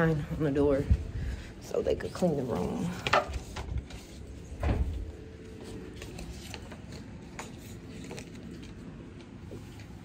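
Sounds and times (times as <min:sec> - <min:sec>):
door shutting thump: 0:04.6 - 0:05.0.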